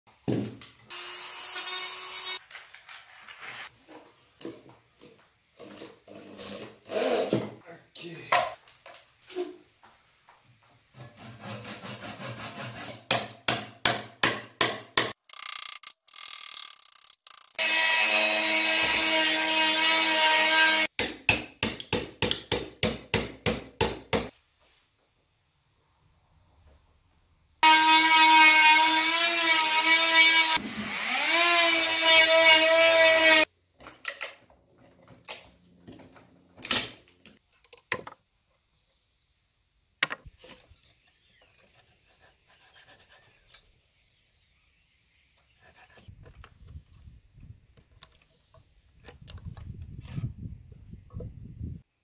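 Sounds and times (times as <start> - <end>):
electric drill boring into wood: 0.9 - 2.4, 17.4 - 20.9, 27.6 - 33.5
hammer striking wood chisel: 13.1 - 15.2, 21.0 - 24.3.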